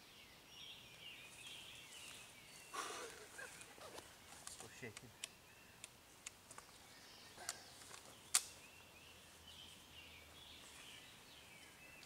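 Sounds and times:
songbirds chirping: 0.0 - 12.0
sharp clicks: 7.4 - 8.6.

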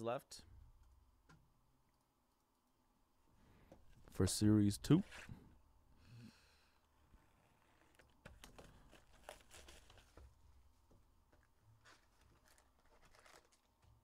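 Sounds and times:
plastic wrap crinkling and tearing: 7.2 - 10.2, 11.8 - 13.8.

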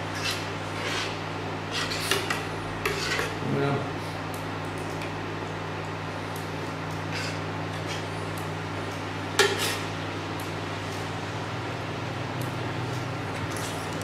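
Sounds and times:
metal spoon scraping a saucepan: 0.2 - 3.4.

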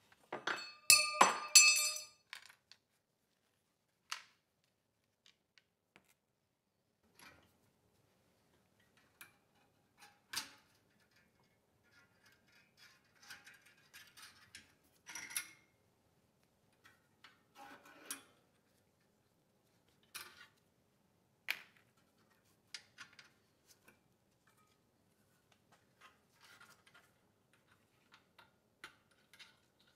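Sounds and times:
light metal clinks: 0.4 - 2.1.

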